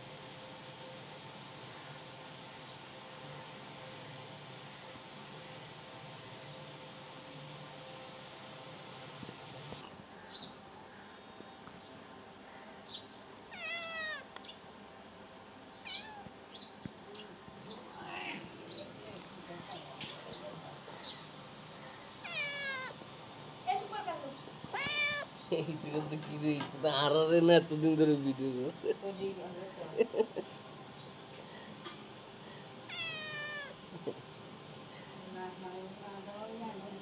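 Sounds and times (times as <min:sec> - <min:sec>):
high-pitched insect drone: 0:00.0 - 0:14.6
kitten meowing: 0:13.5 - 0:14.2, 0:15.8 - 0:16.3, 0:22.2 - 0:23.0, 0:24.7 - 0:25.3, 0:32.9 - 0:33.8.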